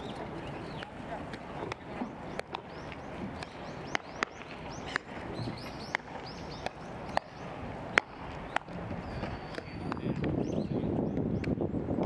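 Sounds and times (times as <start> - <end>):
birds chirping: 0.0 - 11.7
baseballs popping into gloves: 0.7 - 10.4.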